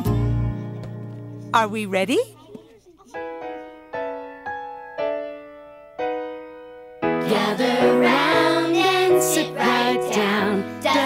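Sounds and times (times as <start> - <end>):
piano chords: 3.2 - 11.0
children singing: 7.2 - 11.0.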